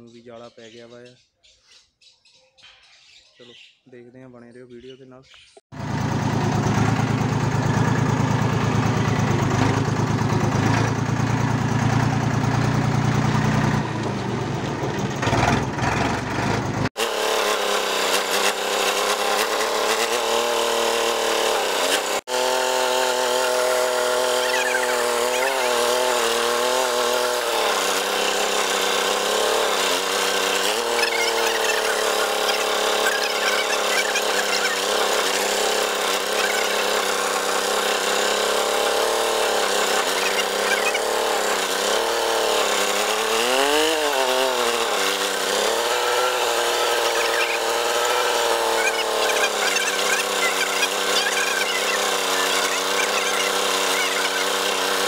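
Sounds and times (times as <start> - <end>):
tractor diesel engine running: 5.7 - 55.0.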